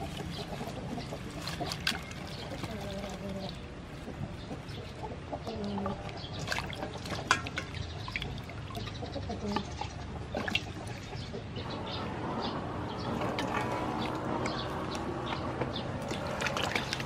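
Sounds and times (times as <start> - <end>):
chickens clucking: 0.0 - 17.0
water splashing in metal bowl: 6.0 - 11.2, 12.9 - 17.0.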